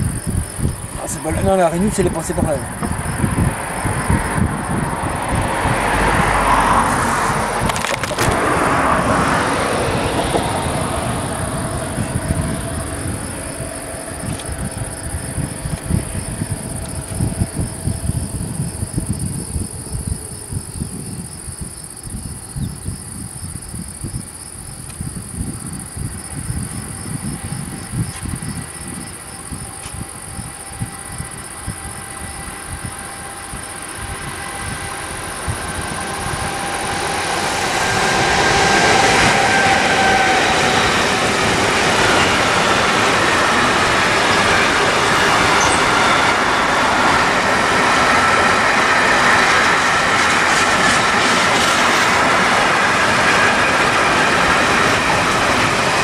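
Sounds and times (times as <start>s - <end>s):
broad rushing noise: 0.0s - 22.0s, 25.4s - 56.0s
distant freight train: 0.0s - 56.0s
insects chirping: 0.0s - 56.0s
wind gusting on microphone: 0.0s - 56.0s.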